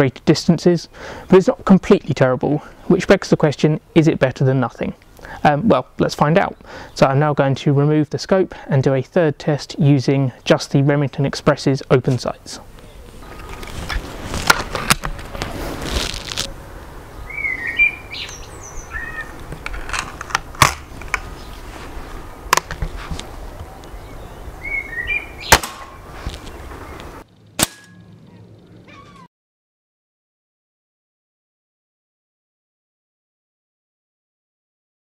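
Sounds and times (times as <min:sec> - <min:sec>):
bird chirping: 0:12.4 - 0:13.6, 0:17.0 - 0:19.5, 0:23.5 - 0:29.3
air rifle shot crack: 0:25.4 - 0:26.0, 0:27.6 - 0:28.0.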